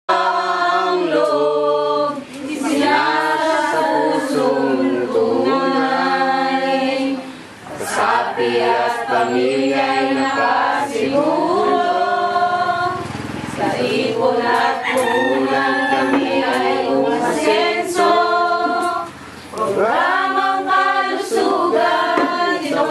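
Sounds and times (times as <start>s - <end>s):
women singing unaccompanied: 0.1s - 22.9s.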